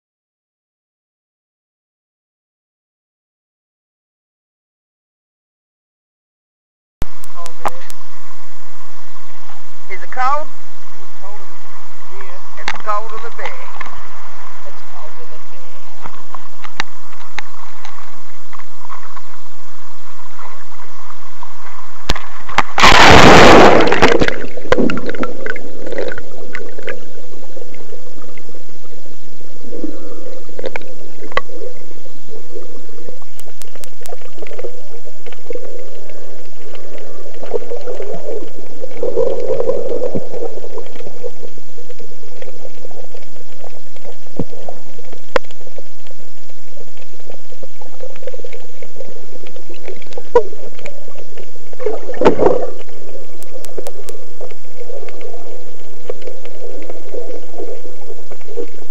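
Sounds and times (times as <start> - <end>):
underwater bubbling and gurgling: 7.0 - 58.9
small underwater clicks: 12.2 - 14.1, 14.7 - 58.9
loud splash into water: 22.6 - 25.2.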